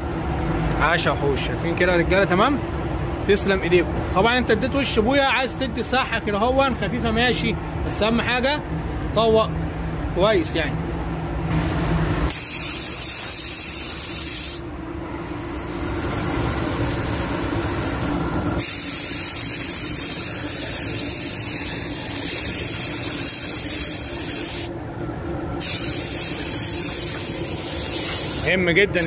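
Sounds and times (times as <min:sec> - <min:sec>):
steady low hum: 0:00.0 - 0:29.0
spray gun hissing: 0:11.5 - 0:14.6, 0:18.6 - 0:24.7, 0:25.6 - 0:29.0.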